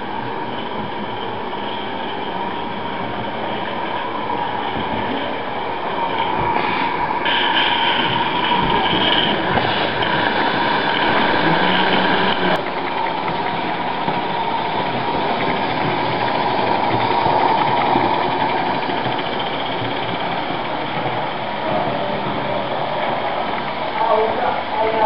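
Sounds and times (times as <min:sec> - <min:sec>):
model steam locomotive clatter: 0:00.0 - 0:25.0.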